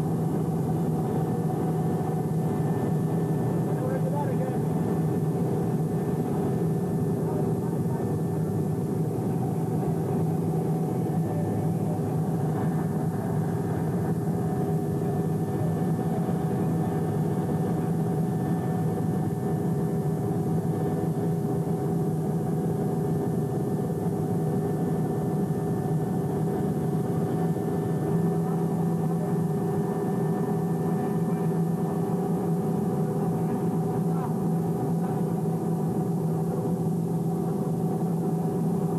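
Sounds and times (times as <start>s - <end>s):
heavy engine drone: 0.0s - 38.9s.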